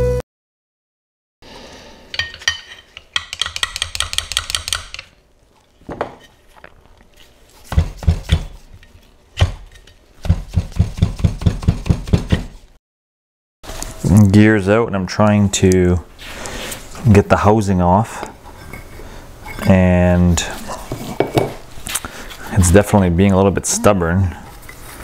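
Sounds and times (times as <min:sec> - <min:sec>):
metal tool tapping on metal: 0:02.1 - 0:05.1.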